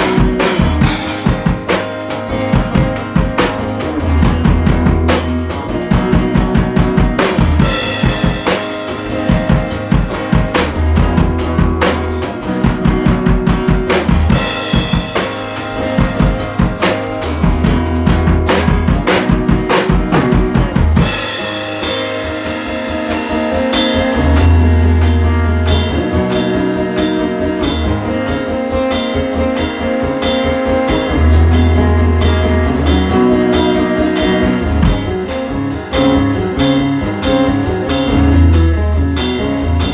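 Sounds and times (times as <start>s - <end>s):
drum kit groove: 0.0s - 39.9s
electric guitar: 0.0s - 39.9s.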